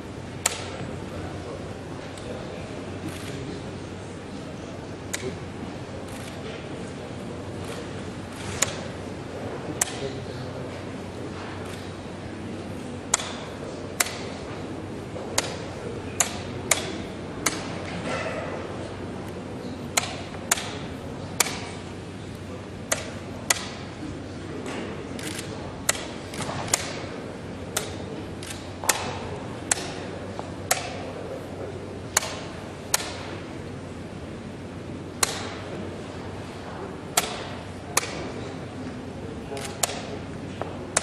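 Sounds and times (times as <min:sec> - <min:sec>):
background murmur: 0:00.0 - 0:41.0.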